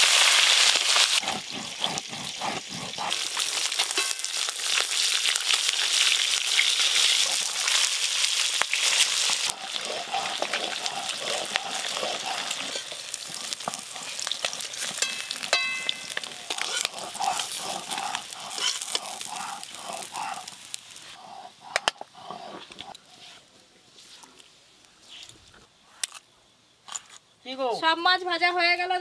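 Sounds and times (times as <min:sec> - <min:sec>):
fish frying in hot oil: 0:00.0 - 0:21.2.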